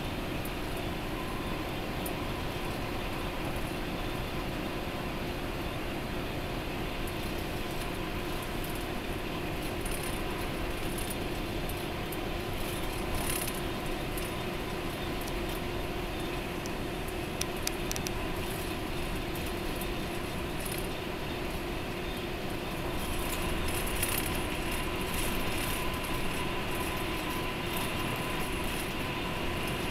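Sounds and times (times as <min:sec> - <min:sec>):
bus engine and tyre noise: 0:00.0 - 0:29.9.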